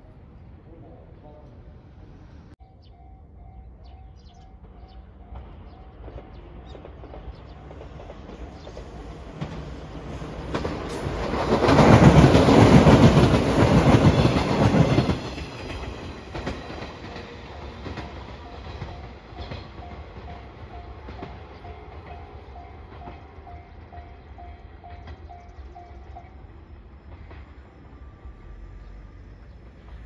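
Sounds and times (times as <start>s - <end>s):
level-crossing warning bell: 2.6s - 9.8s, 14.1s - 28.8s
train wheels clattering: 4.2s - 26.4s.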